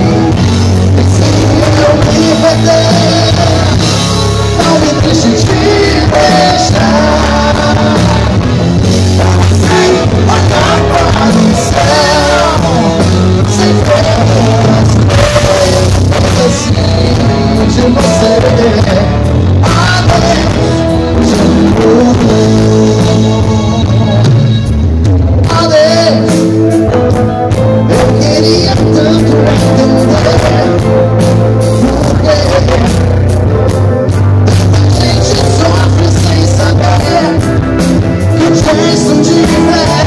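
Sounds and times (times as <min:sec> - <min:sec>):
bass guitar: 0:00.0 - 0:40.0
drums: 0:00.0 - 0:40.0
electric guitar: 0:00.0 - 0:40.0
lead singer: 0:00.0 - 0:40.0.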